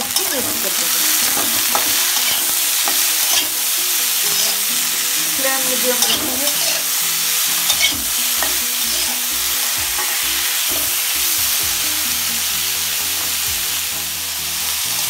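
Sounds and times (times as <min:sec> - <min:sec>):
spatula scraping pan: 0:00.0 - 0:12.5
potatoes sizzling in hot oil: 0:00.0 - 0:15.0
spatula clinking against pan: 0:00.1 - 0:03.7, 0:05.9 - 0:06.9, 0:07.7 - 0:09.2.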